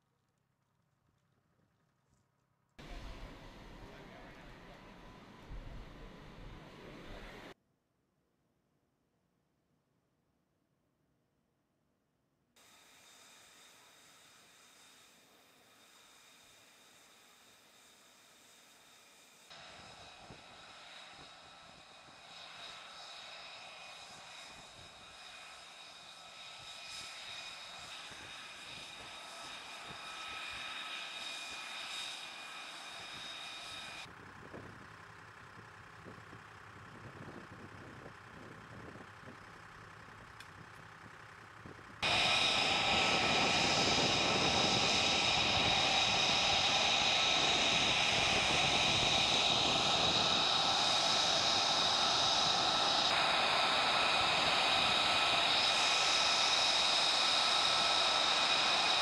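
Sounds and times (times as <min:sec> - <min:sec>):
jet engine whine and rush: 0:02.8 - 0:07.6, 0:12.6 - 0:34.8, 0:41.6 - 0:59.0.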